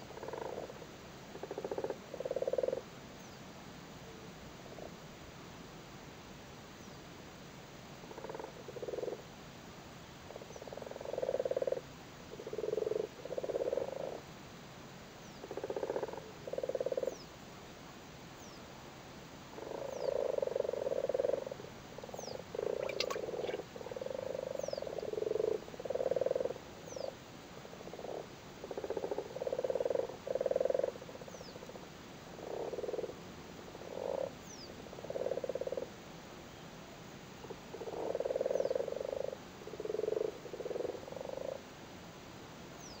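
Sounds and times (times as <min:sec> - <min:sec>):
frogs croaking in chorus: 0:00.0 - 0:02.9, 0:08.1 - 0:09.2, 0:10.3 - 0:14.3, 0:15.2 - 0:17.3, 0:19.5 - 0:36.0, 0:37.4 - 0:41.7.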